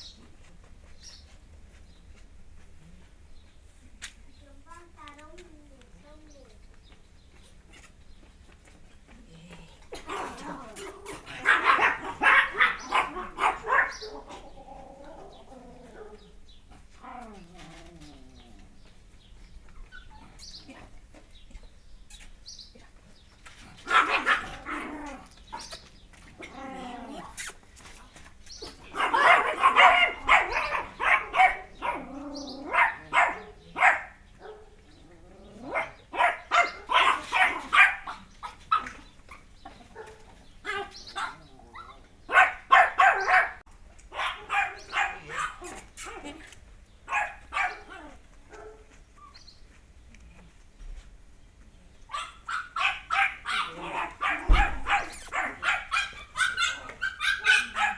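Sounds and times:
small dog yapping: 0:10.0 - 0:14.5, 0:23.8 - 0:25.8, 0:28.6 - 0:34.1, 0:35.6 - 0:39.4, 0:40.0 - 0:46.5, 0:52.1 - 0:57.9.

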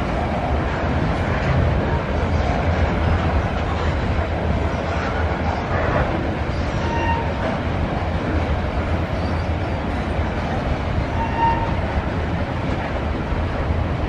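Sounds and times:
steel wheels rumbling on rail: 0:00.0 - 0:14.0
high wheel squeal: 0:06.6 - 0:07.4, 0:11.0 - 0:11.9.

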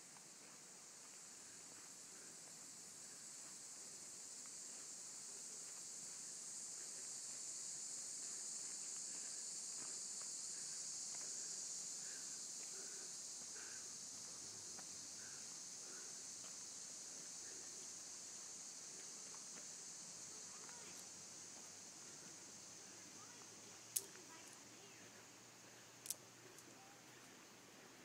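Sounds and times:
faint footsteps on trail: 0:00.0 - 0:28.0
high-pitched insect chorus: 0:00.0 - 0:28.0.

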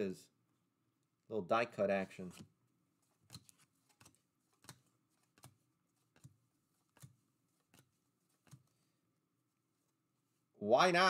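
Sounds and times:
trading cards being flipped: 0:02.1 - 0:08.8.

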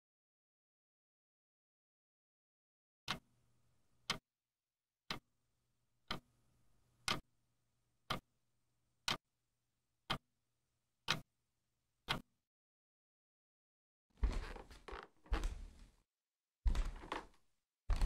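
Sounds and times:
clock ticking: 0:03.1 - 0:03.3, 0:05.1 - 0:05.3, 0:06.0 - 0:06.3, 0:07.0 - 0:07.3, 0:08.1 - 0:08.3, 0:11.0 - 0:11.3, 0:12.0 - 0:12.3.

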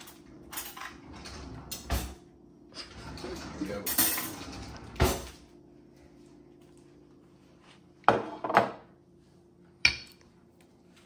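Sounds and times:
dishes knocking: 0:08.0 - 0:08.8.

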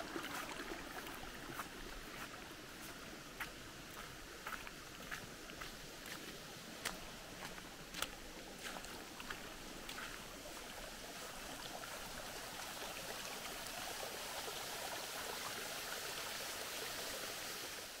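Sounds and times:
footsteps: 0:00.2 - 0:11.5.

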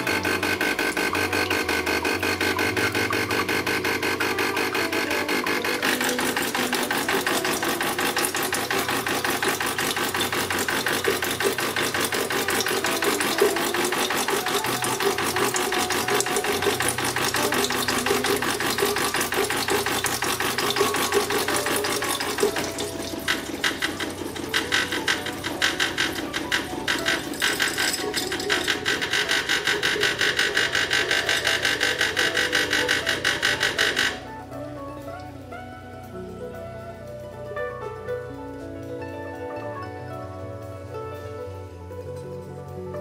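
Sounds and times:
espresso machine pump buzzing: 0:00.0 - 0:37.8
water and steam hissing: 0:04.4 - 0:33.8.

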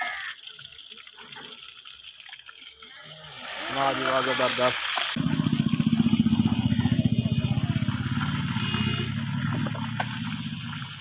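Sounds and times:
motorcycle engine running: 0:05.2 - 0:11.0.

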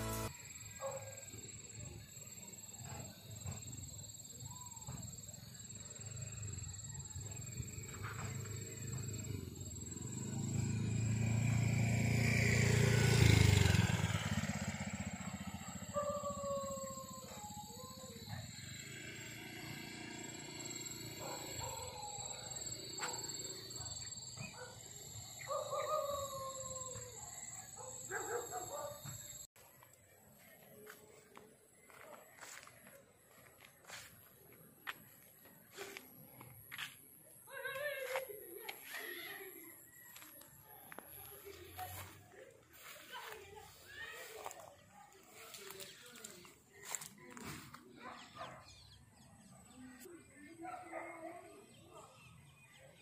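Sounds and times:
insects trilling: 0:00.1 - 0:29.5.

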